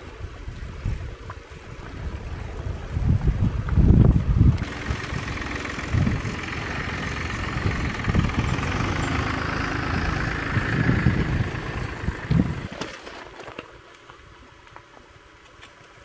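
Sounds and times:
wind buffeting microphone: 0.0 - 12.8
tractor engine running: 1.8 - 13.4.

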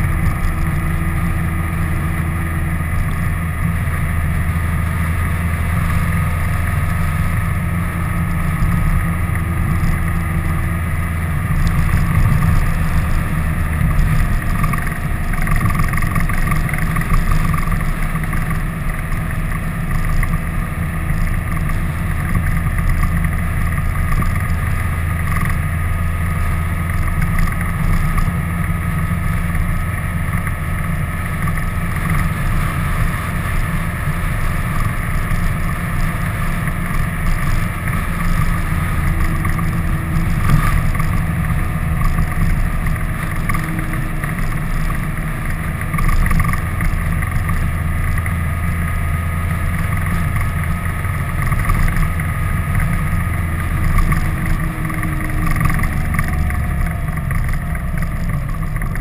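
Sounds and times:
vehicle engine running: 0.0 - 59.0
wind on microphone: 8.7 - 16.2.

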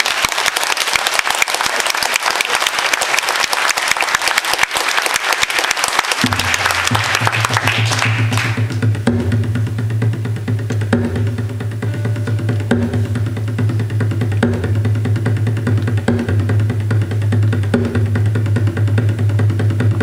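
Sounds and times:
audience applauding: 0.0 - 8.8
low steady frame drum: 6.2 - 20.0.

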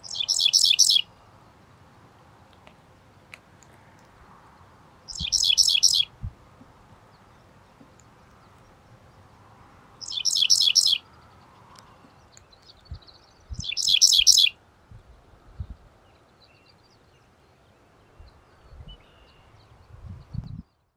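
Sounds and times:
bird singing high repeated notes: 0.0 - 1.2, 5.1 - 6.2, 10.0 - 11.2, 12.2 - 14.6.

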